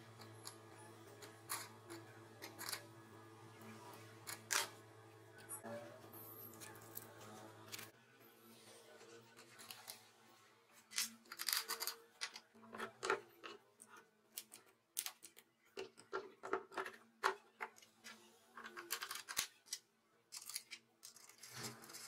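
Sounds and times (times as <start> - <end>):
handling clicks knocks and scrapes: 0.1 - 2.9.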